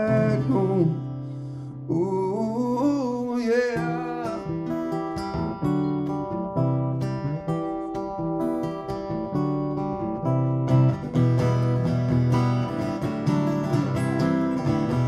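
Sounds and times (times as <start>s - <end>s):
acoustic guitar: 0.0s - 15.0s.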